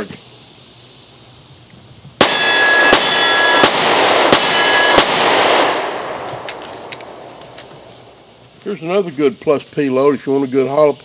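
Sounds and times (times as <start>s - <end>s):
pistol shots with echo: 2.2s - 7.5s.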